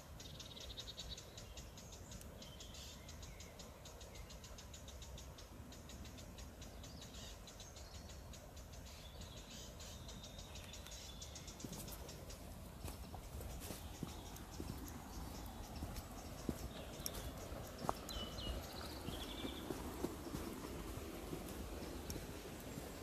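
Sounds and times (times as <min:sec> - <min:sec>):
birds chirping and trilling: 0:00.0 - 0:23.0
steady low rumble: 0:12.1 - 0:23.0.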